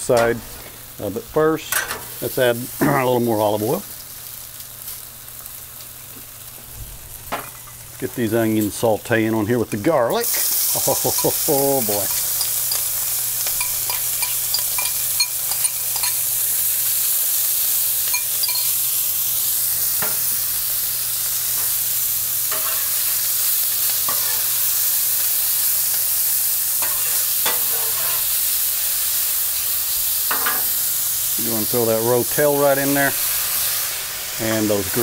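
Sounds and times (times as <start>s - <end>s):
onions sizzling in oil: 0.0s - 35.0s
metal spatula scraping griddle: 22.5s - 23.0s, 24.1s - 24.5s, 26.8s - 28.3s.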